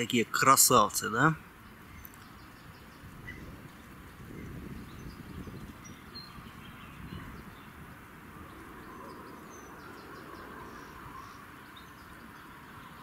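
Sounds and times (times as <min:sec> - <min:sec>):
low rumble on microphone: 0:02.7 - 0:11.4.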